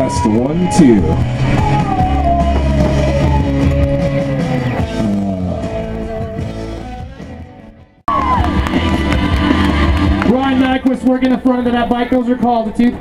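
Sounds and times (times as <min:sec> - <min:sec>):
rock music with guitar: 0:00.0 - 0:10.4.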